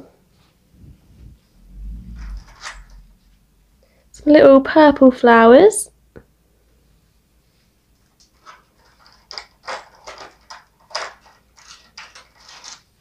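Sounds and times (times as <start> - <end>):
plastic tray crinkling: 8.4 - 12.9.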